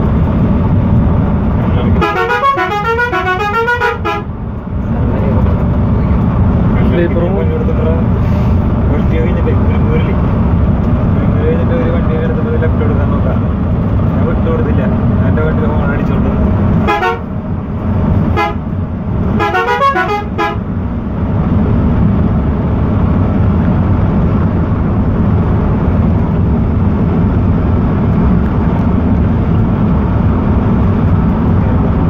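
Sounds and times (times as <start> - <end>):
diesel engine drone: 0.0 - 32.0
road noise: 0.0 - 32.0
vehicle horn toots: 2.0 - 4.3, 16.8 - 17.3, 18.3 - 18.6, 19.4 - 20.6.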